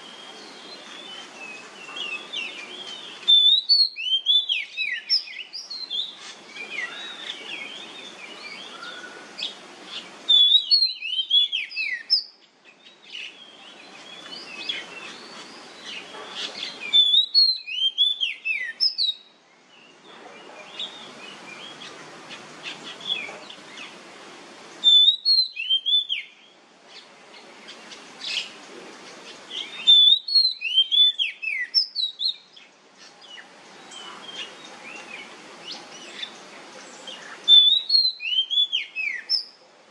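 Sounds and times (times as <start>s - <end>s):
bird singing whistled notes: 0.0s - 20.0s, 24.8s - 27.1s, 29.5s - 39.6s
steady hiss: 0.0s - 39.9s
soft bird chirps: 24.8s - 39.6s.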